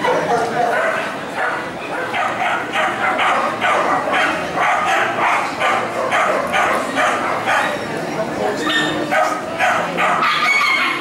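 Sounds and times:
dog barking rhythmically: 0.1 - 7.7.

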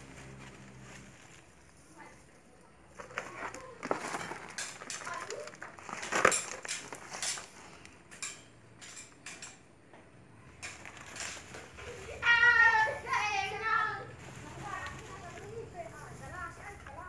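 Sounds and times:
potting mix pouring and rustling: 2.9 - 7.8, 13.8 - 17.0.

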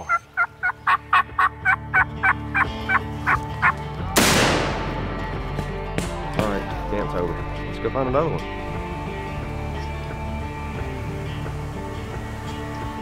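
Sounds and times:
quiet background music: 0.0 - 13.0
turkey yelps: 0.1 - 3.0.

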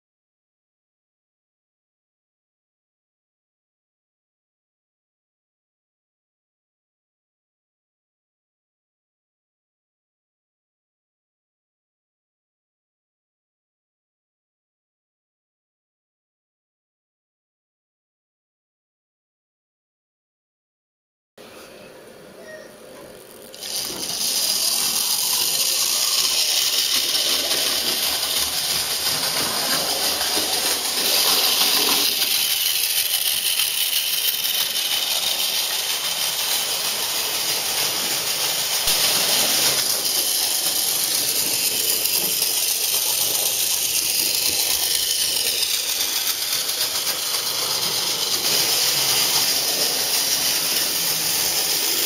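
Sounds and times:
model train rattling on rails: 22.9 - 52.0.

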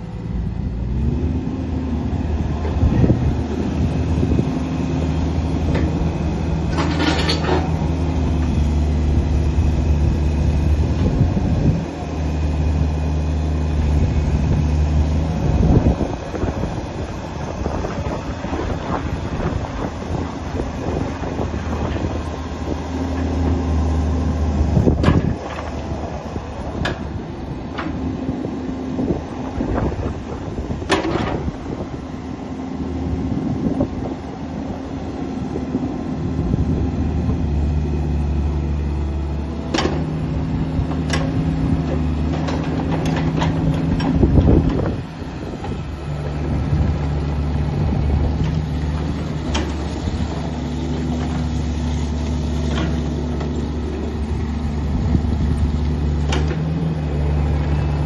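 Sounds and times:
excavator diesel engine working: 0.0 - 58.0
metal clanks from equipment: 6.7 - 7.7.

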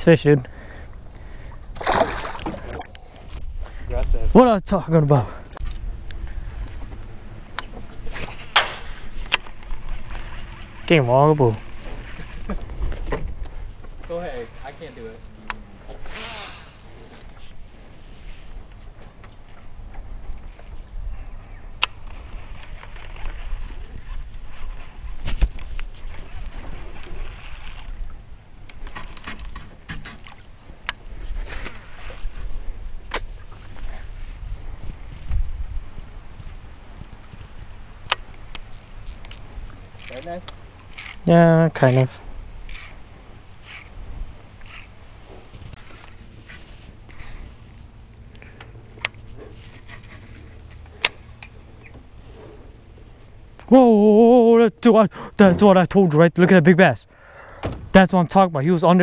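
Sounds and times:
water lapping around boat: 1.2 - 3.4, 22.2 - 32.8
fishing reel clicks: 15.5 - 17.3, 38.1 - 43.0, 43.6 - 44.0, 44.6 - 45.0
wind on microphone: 31.0 - 37.9.

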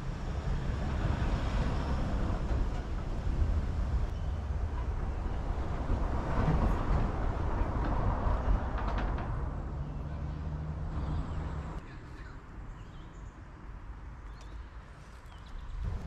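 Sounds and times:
engine hum: 0.0 - 12.4
road traffic rumble: 0.0 - 16.0.

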